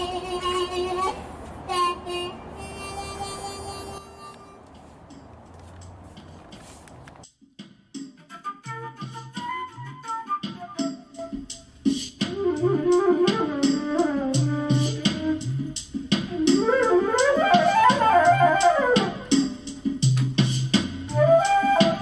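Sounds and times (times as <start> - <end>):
flute melody: 1.7 - 4.8, 8.1 - 19.8, 21.1 - 22.0
backing track with drum beat and bass: 4.6 - 22.0.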